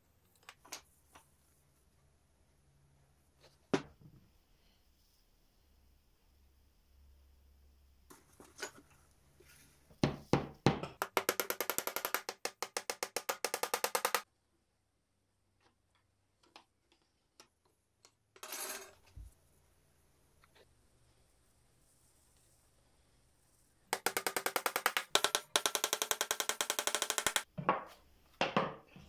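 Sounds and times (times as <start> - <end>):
hammer tapping nail into wood: 10.1 - 14.2.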